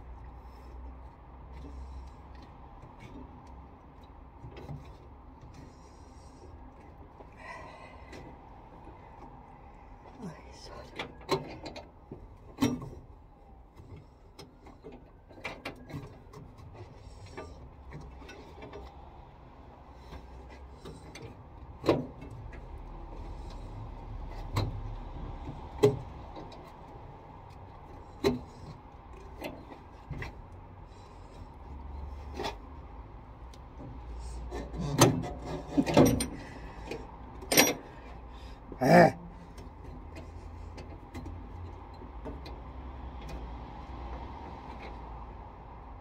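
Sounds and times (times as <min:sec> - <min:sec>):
tools clicking and knocking on metal: 0:33.5 - 0:38.2.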